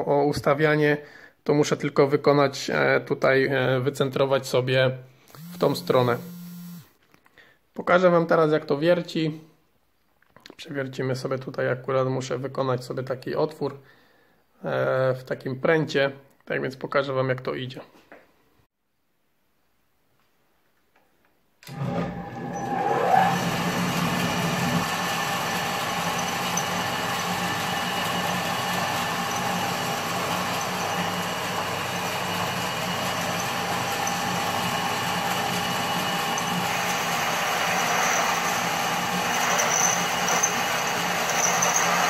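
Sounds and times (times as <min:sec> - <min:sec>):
drill boring into steel rod: 0:05.3 - 0:06.9, 0:22.5 - 0:42.0
lathe electric motor running: 0:05.4 - 0:06.9, 0:22.7 - 0:42.0.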